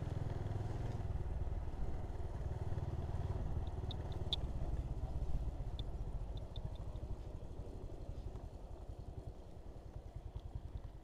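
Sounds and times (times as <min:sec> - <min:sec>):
motorcycle engine rumble: 0:00.0 - 0:11.0
faint high ticks: 0:03.5 - 0:04.9, 0:05.6 - 0:07.2.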